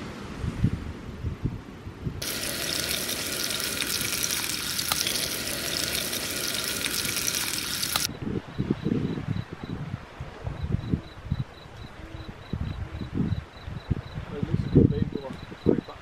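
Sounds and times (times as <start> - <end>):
fish frying in oil: 2.2 - 8.1.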